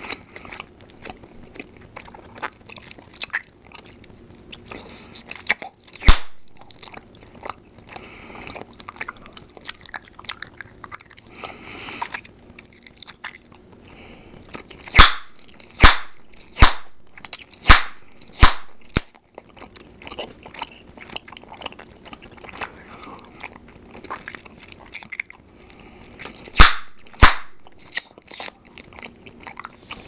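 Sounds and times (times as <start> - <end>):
gum chewing mouth sounds: 0.0 - 30.0
loud gum pops: 6.0 - 6.8, 14.9 - 19.2, 26.4 - 28.1.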